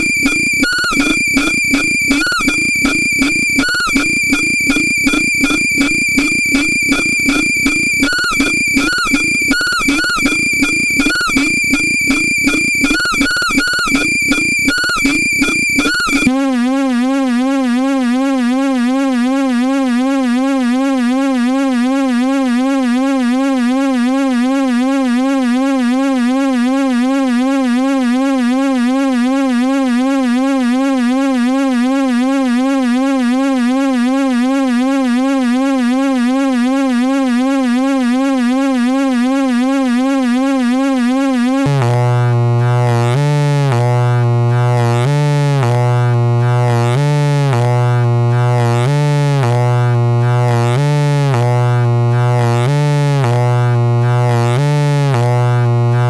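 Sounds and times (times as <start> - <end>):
buzzy electronic drone: 0.0 - 27.9, 40.2 - 56.0.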